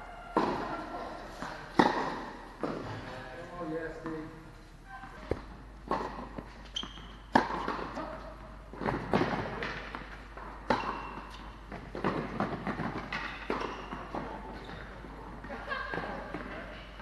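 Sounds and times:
tennis ball bouncing: 0:00.4 - 0:00.8, 0:01.4 - 0:02.8, 0:05.2 - 0:08.0, 0:08.7 - 0:15.0
racket striking tennis ball: 0:01.4 - 0:02.8, 0:05.3 - 0:08.0, 0:08.8 - 0:14.4.

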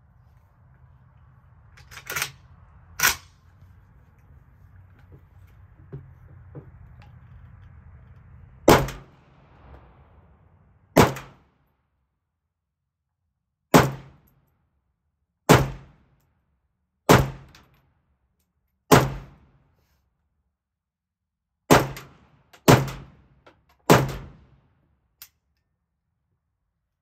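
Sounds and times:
rifle shots with echo: 0:08.7 - 0:09.5, 0:11.0 - 0:11.5.

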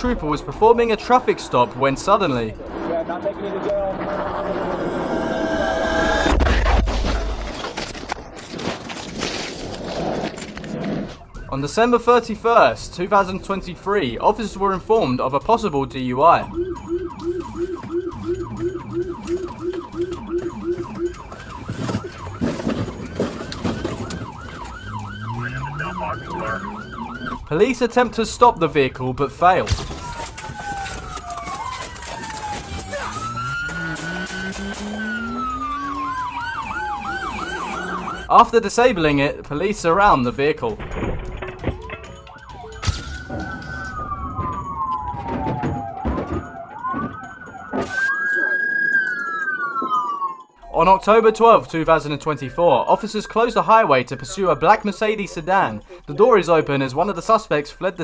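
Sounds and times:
low tone climbing in pitch: 0:02.5 - 0:06.4, 0:16.2 - 0:22.0, 0:23.9 - 0:27.5
police siren yelping: 0:02.6 - 0:06.4, 0:11.2 - 0:13.8, 0:15.5 - 0:38.3, 0:41.6 - 0:56.2
clattering and knocks: 0:19.4 - 0:25.2, 0:40.7 - 0:42.4, 0:44.3 - 0:47.9.

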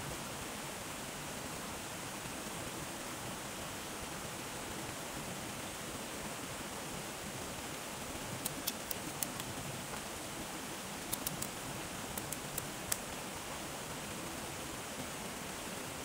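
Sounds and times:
water flowing: 0:00.1 - 0:16.0
fire crackling and popping: 0:08.4 - 0:09.6, 0:11.1 - 0:13.0.

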